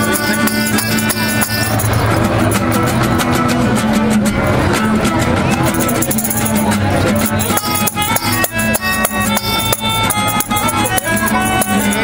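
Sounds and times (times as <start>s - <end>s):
melodica playing held notes: 0.0s - 2.3s, 5.8s - 12.0s
shaken hand percussion: 0.0s - 12.0s.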